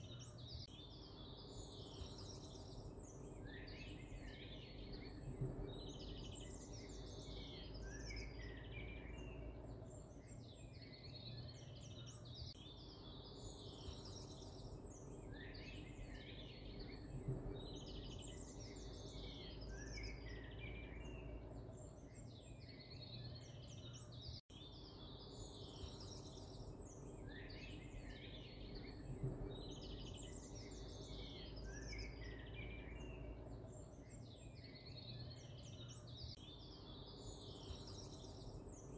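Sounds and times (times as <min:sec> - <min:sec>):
songbirds chirping and trilling: 0:00.0 - 0:38.9
steady low hum: 0:00.0 - 0:38.9.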